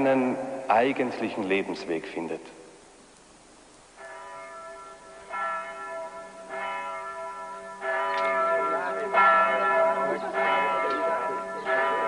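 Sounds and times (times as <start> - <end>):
church bells ringing: 4.0 - 12.0.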